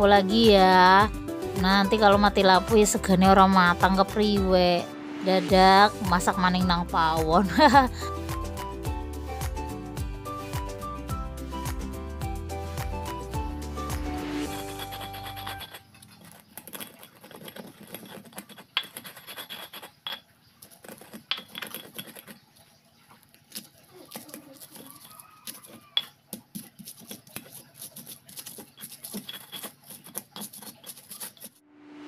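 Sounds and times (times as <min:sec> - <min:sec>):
stone pestle grinding on stone: 0:13.1 - 0:22.4, 0:23.5 - 0:31.6.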